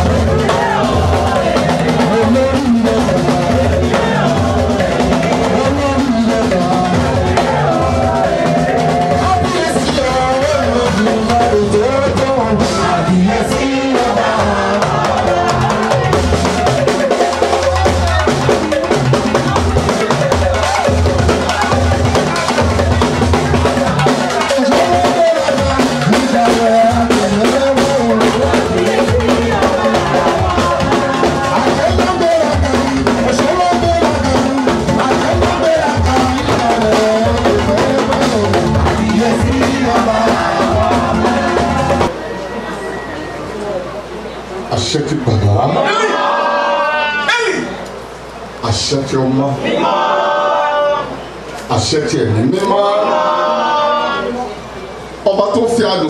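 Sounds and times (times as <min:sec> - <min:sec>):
drum kit beat: 0:00.0 - 0:42.2.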